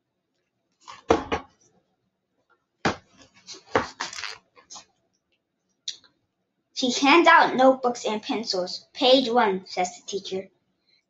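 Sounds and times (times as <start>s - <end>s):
book cover knocking and scraping: 0.9s - 1.6s, 2.9s - 4.4s
book pages rustling: 3.0s - 4.4s.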